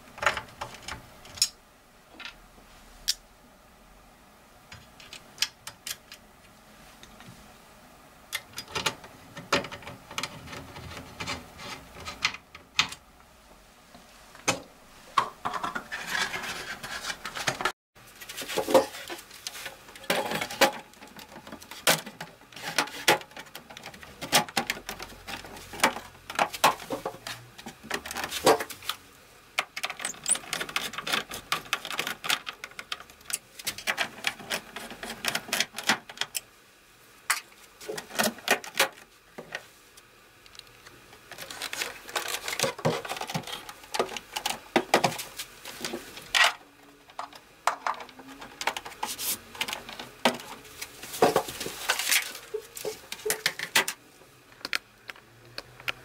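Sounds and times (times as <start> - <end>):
clicks and knocks handling computer case: 8.4 - 13.0, 18.3 - 29.0.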